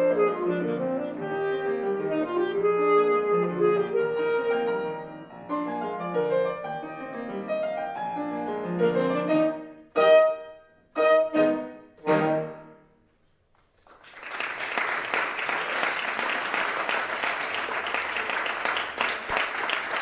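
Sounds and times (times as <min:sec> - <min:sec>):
saxophone and piano chords: 0:00.0 - 0:13.1
audience applause: 0:13.5 - 0:20.0.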